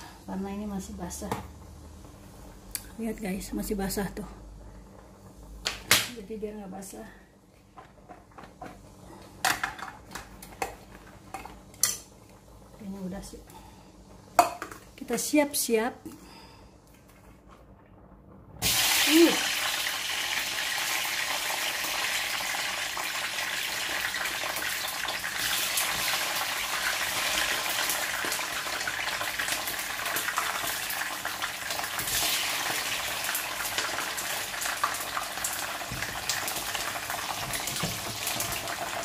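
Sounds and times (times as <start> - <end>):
chilies sizzling in hot oil: 18.6 - 39.0.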